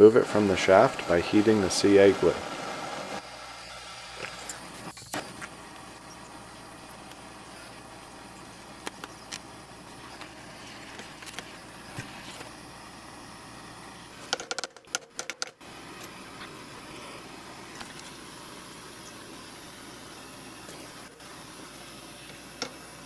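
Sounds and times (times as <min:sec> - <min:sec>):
gas torch hissing: 0:00.0 - 0:14.3, 0:15.6 - 0:23.0.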